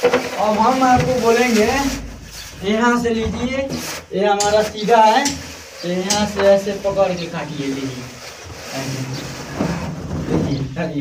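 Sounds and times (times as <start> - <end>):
straightedge scraping wet plaster: 3.6 - 9.9.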